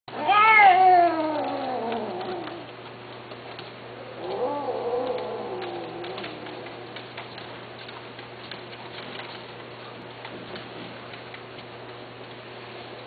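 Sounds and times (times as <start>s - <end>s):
cat meowing: 0.1s - 2.6s, 4.1s - 6.8s.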